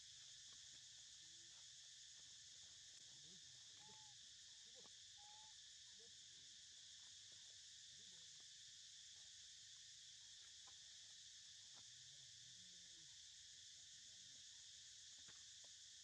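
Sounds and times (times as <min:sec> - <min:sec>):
high-pitched insect chorus: 0:00.0 - 0:16.0.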